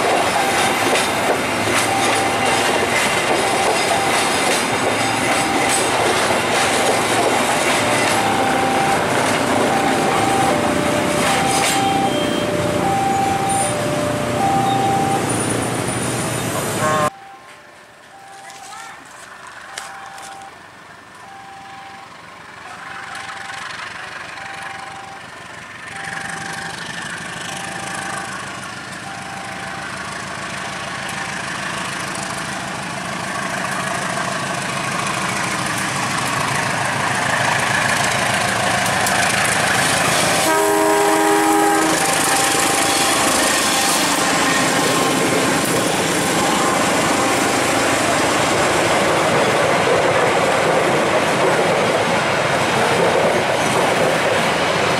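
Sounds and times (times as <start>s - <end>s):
level crossing warning beeps: 0.0s - 1.2s, 1.8s - 19.0s, 19.6s - 20.6s, 21.2s - 30.0s, 40.5s - 47.9s
train passing: 0.0s - 54.9s
train horn blast: 16.7s - 17.1s, 40.2s - 45.2s.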